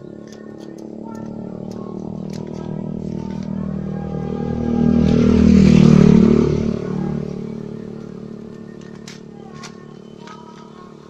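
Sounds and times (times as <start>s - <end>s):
motor vehicle passing: 0.0s - 11.0s.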